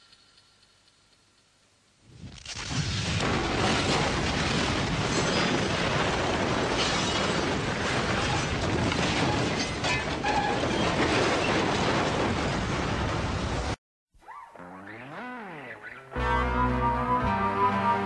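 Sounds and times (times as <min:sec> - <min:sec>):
fire burning with crackles: 0:02.0 - 0:13.8.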